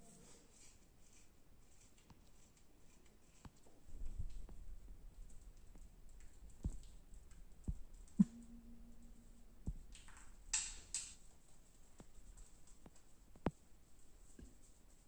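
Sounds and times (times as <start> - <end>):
light clicks and taps: 5.3 - 8.6, 9.7 - 15.0
brief low hum: 8.2 - 9.9.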